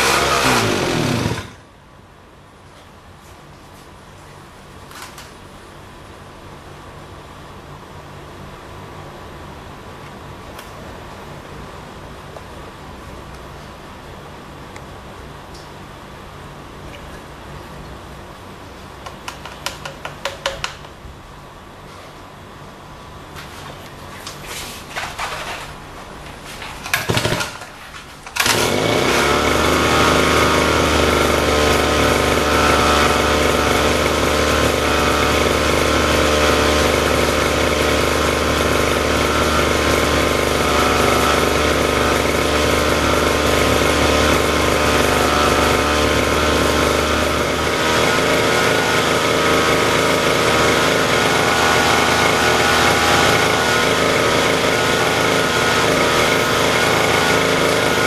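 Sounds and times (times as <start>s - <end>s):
lawn mower engine running: 0.0s - 1.7s, 26.6s - 27.6s, 28.2s - 58.0s.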